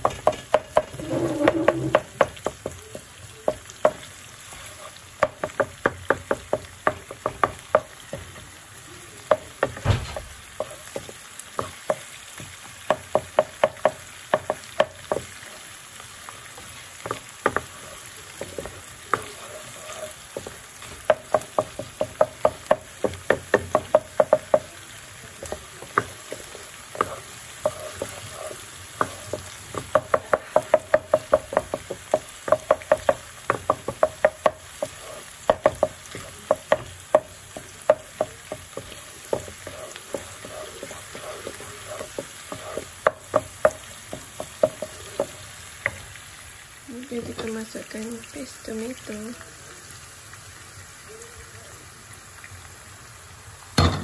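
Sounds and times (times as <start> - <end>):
meat sizzling: 0.0 - 54.0
spatula scraping wok: 0.1 - 3.0, 3.8 - 5.8, 14.4 - 46.0.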